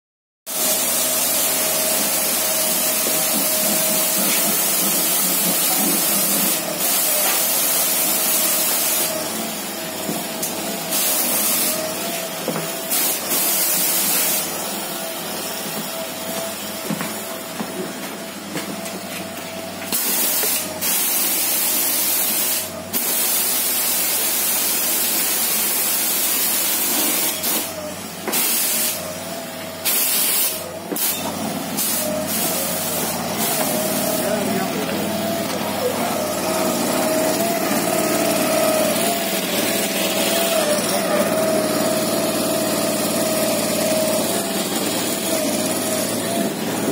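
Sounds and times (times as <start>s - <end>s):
spray nozzle hissing: 0.5s - 9.2s, 10.9s - 11.9s, 12.9s - 14.5s, 19.9s - 27.7s, 29.8s - 31.1s, 31.8s - 34.4s.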